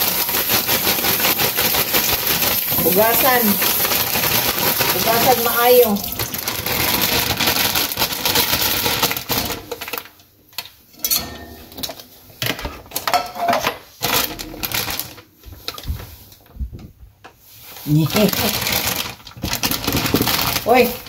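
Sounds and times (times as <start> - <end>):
tap water running: 0.0 - 7.2
plastic bag crinkling: 0.0 - 10.2, 14.0 - 16.3, 17.6 - 21.0.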